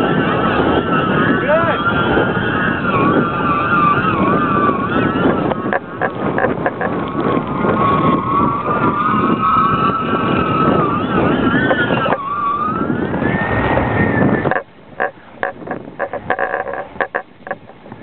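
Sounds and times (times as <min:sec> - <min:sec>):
strong wind rushing: 0:00.0 - 0:18.0
wavering wind whistle: 0:00.0 - 0:18.0.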